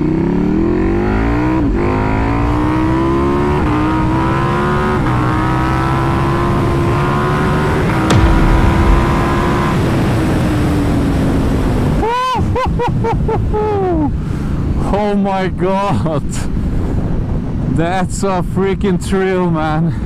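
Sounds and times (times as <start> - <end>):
heavy wind rush: 7.9 - 12.0.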